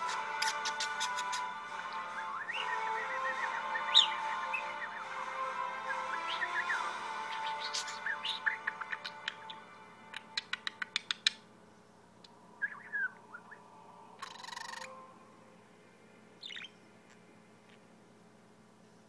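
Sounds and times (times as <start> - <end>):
budgerigar chirping: 2.4 - 5.1, 6.0 - 9.6, 14.2 - 14.9, 16.4 - 16.8.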